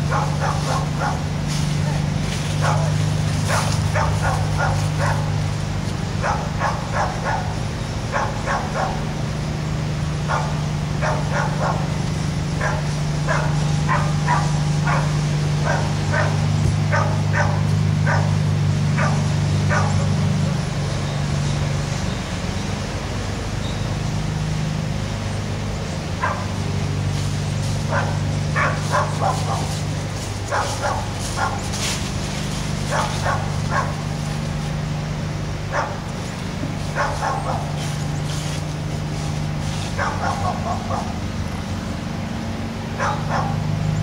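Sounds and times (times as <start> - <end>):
dog barking: 0.0 - 5.5, 6.1 - 9.3, 10.2 - 20.3, 26.2 - 26.6, 27.8 - 32.0, 32.7 - 34.5, 35.6 - 36.1, 36.8 - 38.5, 39.2 - 41.2, 43.0 - 43.7
steady low hum: 0.0 - 44.0.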